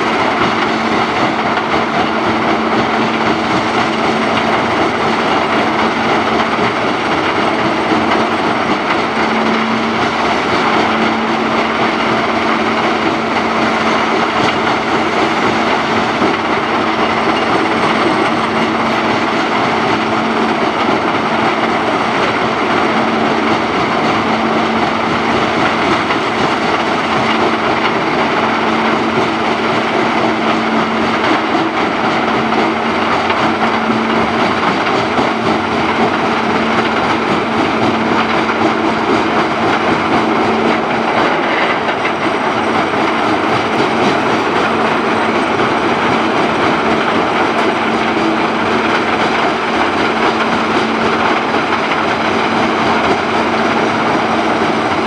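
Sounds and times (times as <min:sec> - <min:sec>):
diesel engines droning: 0:00.0 - 0:55.0
steady hum: 0:00.0 - 0:55.0.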